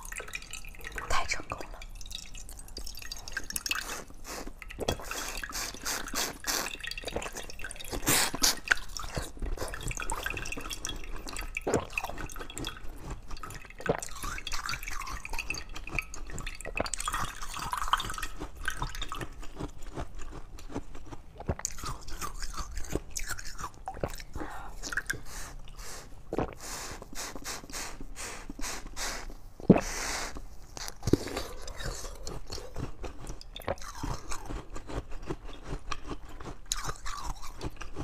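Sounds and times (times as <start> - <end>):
wet sucking and slurping: 2.6 - 12.3, 21.4 - 35.1.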